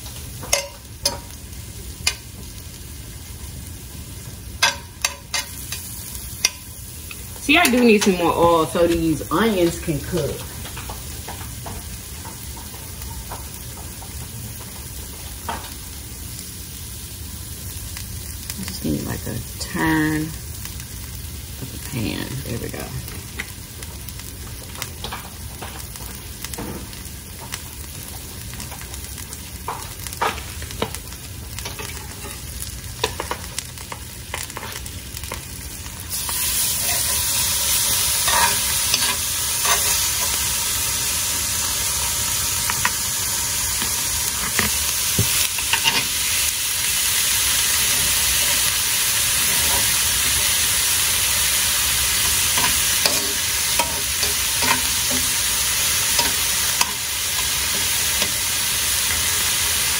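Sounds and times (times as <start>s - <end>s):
food sizzling in frying pan: 0.0s - 59.9s
metal utensil scraping pan: 36.1s - 40.5s, 45.5s - 46.2s, 49.4s - 50.5s, 52.2s - 58.5s.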